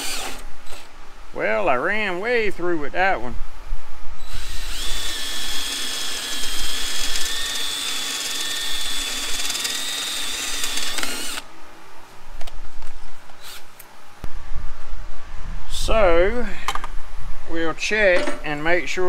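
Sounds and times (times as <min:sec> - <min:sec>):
power drill boring through steel: 0:00.0 - 0:00.8, 0:04.3 - 0:11.4.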